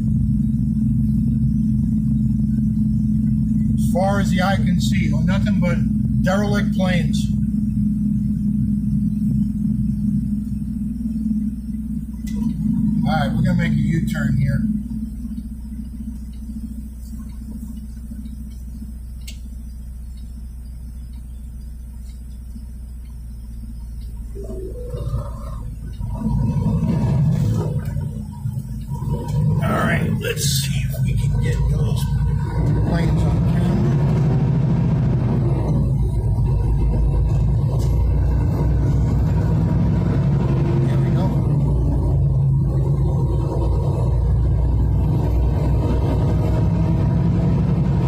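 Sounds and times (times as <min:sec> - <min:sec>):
vehicle engine and tyre noise: 0:00.0 - 0:48.0
faint click: 0:18.5 - 0:19.5.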